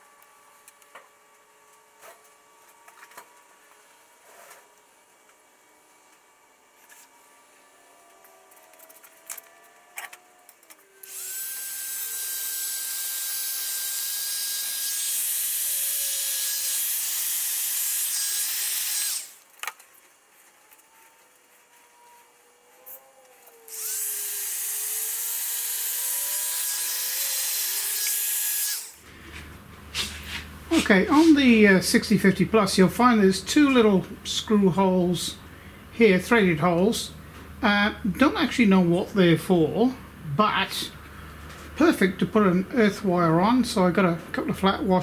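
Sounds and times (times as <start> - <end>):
heat gun blowing: 10.9 - 19.5, 22.9 - 31.6.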